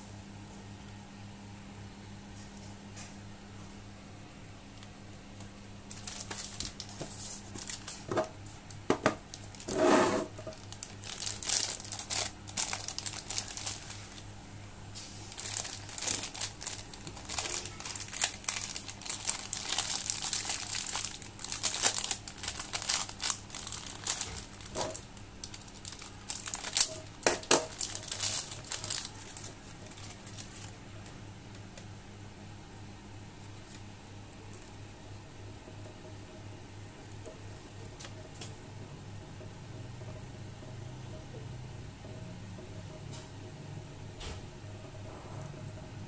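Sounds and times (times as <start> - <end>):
plastic bag crinkling: 5.8 - 14.4, 15.0 - 31.2.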